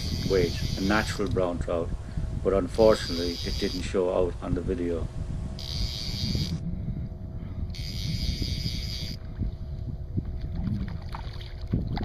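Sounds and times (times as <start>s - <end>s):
high hissing buzz: 0.0s - 9.2s
wind buffeting microphone: 0.0s - 12.0s
water slapping boat hull: 10.2s - 12.0s.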